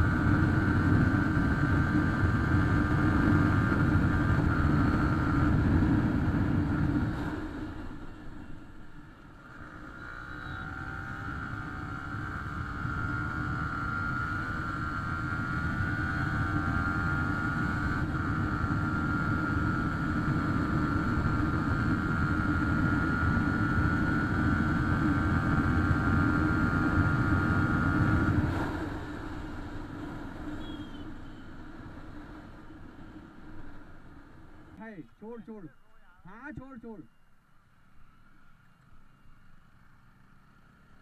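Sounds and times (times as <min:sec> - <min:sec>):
wind rush on microphone: 0:00.0 - 0:07.7
motorcycle engine running hard: 0:00.0 - 0:34.8.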